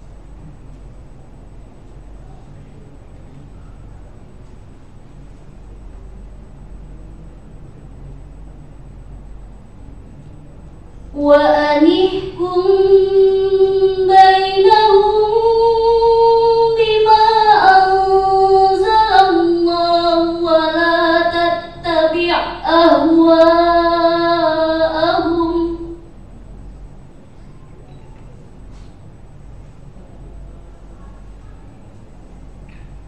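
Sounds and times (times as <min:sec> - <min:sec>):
girl chanting recitation: 0:11.2 - 0:26.1.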